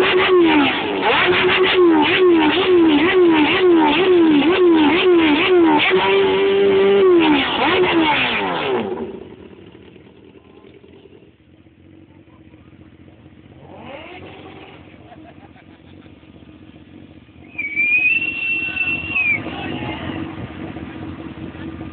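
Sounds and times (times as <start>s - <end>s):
motorcycle engine revving: 0.0s - 21.9s.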